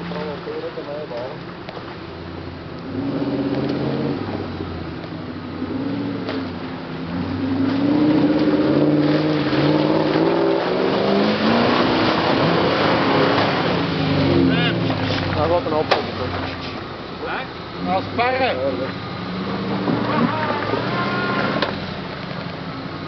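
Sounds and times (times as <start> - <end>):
tyres churning mud: 0.0 - 23.0
engine revving under load: 2.8 - 16.8, 17.8 - 22.1.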